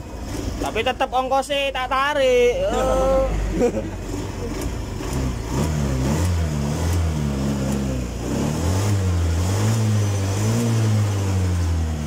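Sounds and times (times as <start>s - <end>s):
scooter engine revving: 2.6s - 12.0s.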